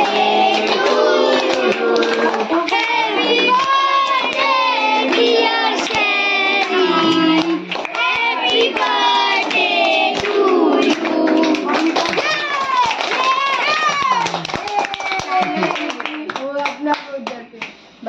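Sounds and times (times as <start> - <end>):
children singing together: 0.0 - 12.3
hand clapping: 3.5 - 17.8.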